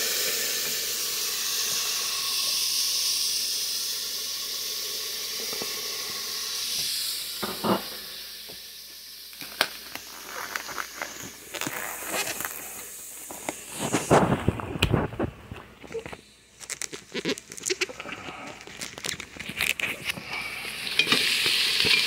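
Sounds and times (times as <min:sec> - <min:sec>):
pot hissing on stove: 0:00.0 - 0:22.0
plastic wrap crinkling: 0:09.4 - 0:20.3.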